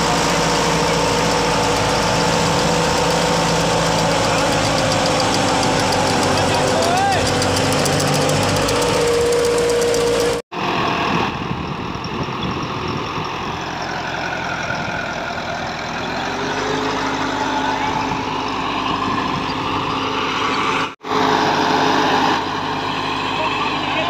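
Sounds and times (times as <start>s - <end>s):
rotavator tilling soil: 0.0s - 11.2s
tractor diesel engine running: 0.0s - 24.0s.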